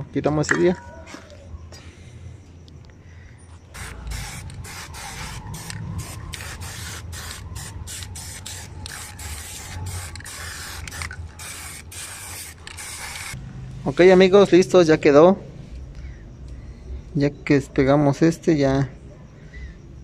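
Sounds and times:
spray paint can hissing: 0:03.7 - 0:13.4.

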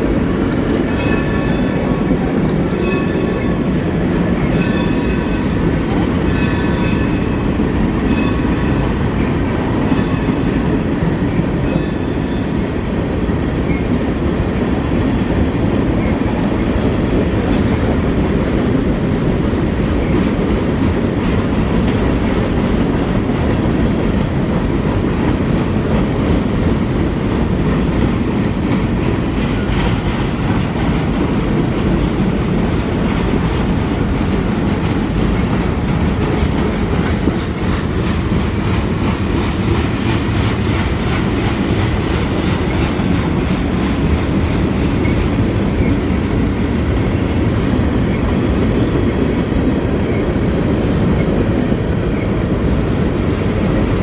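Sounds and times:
wheels clacking over rail joints: 0:00.0 - 0:50.2
freight train wheels rumbling: 0:00.0 - 0:54.0.

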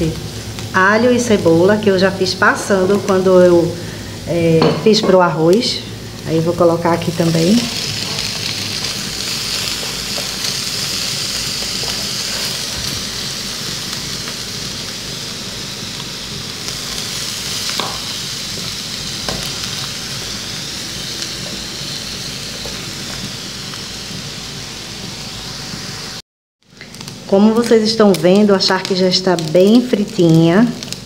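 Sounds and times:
meat sizzling in a frying pan: 0:00.0 - 0:31.0.

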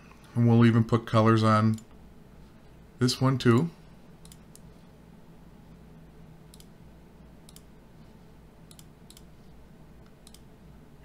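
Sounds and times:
faint low hum: 0:00.0 - 0:11.0
computer mouse clicking: 0:03.6 - 0:04.7, 0:06.5 - 0:06.7, 0:07.4 - 0:07.7, 0:08.7 - 0:09.3, 0:10.0 - 0:10.5.

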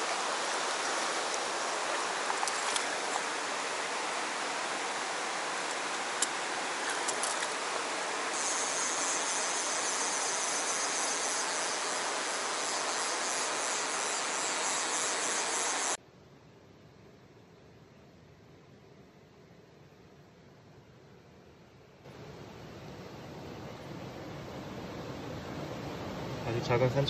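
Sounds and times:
stream rushing over rocks: 0:00.0 - 0:08.4
high hiss: 0:00.0 - 0:16.0.

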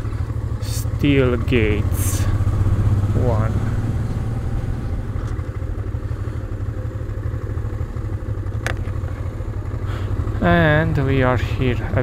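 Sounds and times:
motorcycle engine rumbling: 0:00.0 - 0:12.0.

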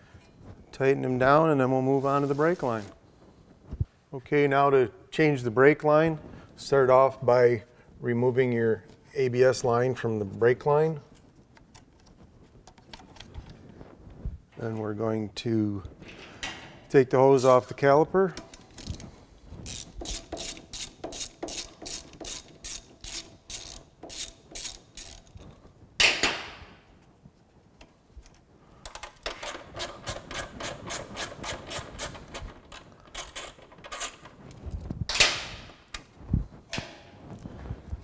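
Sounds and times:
ratchet wrench clicking: 0:19.7 - 0:25.4.

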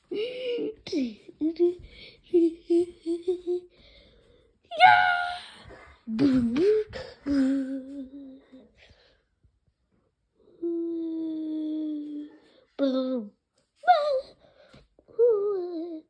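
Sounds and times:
person humming: 0:02.3 - 0:03.8, 0:06.1 - 0:08.7.

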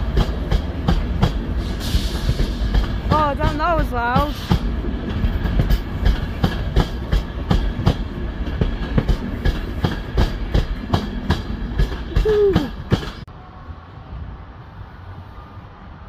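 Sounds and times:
wheels clacking over rail joints: 0:00.0 - 0:13.3
train rumbling past: 0:00.0 - 0:16.0.

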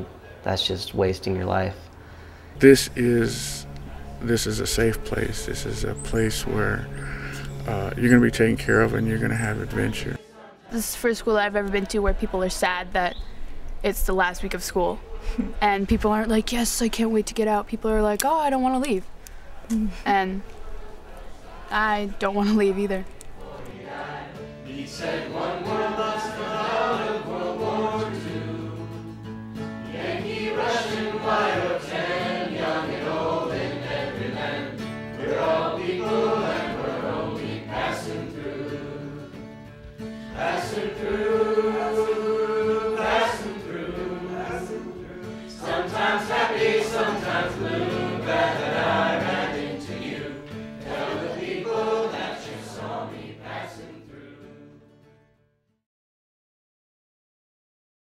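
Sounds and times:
steady low drone note: 0:02.5 - 0:10.2
group of voices singing: 0:02.6 - 0:11.1, 0:20.8 - 0:39.5, 0:40.1 - 0:54.9.

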